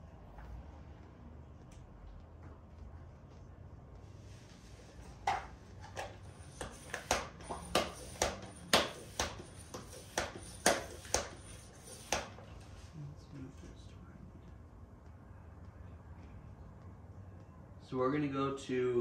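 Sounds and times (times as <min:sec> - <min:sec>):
bicycle pump rush of air: 0:05.9 - 0:12.5.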